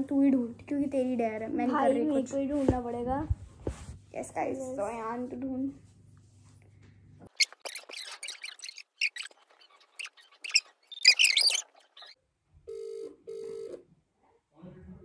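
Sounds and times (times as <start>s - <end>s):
squeaks near microphone: 7.3s - 12.2s
phone ringback tone: 12.7s - 13.8s.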